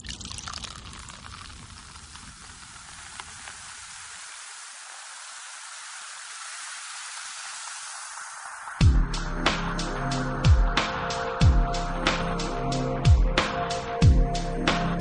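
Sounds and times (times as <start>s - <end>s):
outdoor hiss: 0.0s - 9.0s.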